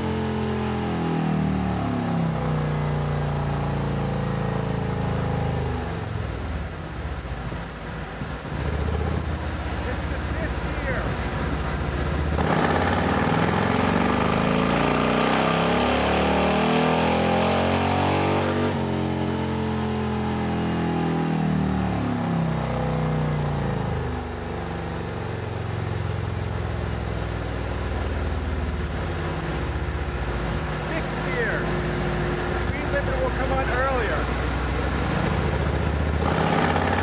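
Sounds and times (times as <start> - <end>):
motorcycle engine revving: 8.5 - 24.2, 28.6 - 37.0.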